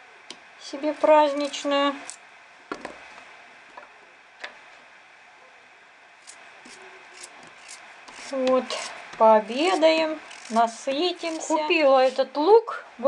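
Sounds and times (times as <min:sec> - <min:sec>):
knife slicing raw potato: 0:06.2 - 0:12.4.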